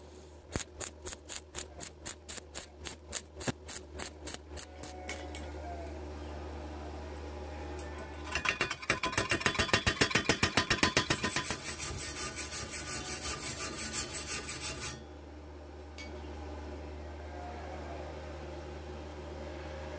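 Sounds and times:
steady low hum: 0:00.0 - 0:19.9
wire brush scrubbing metal: 0:08.2 - 0:15.0.

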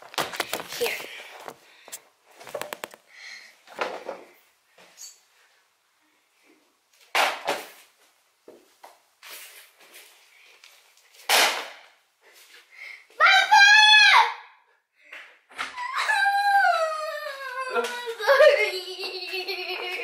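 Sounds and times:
rustling and knocking of handled objects: 0:00.0 - 0:05.3.

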